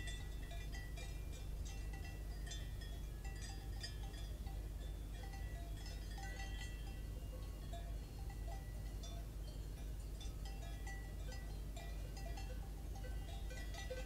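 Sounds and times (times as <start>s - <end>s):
cowbells clanking: 0.0s - 14.0s
low steady rumble: 0.0s - 14.0s.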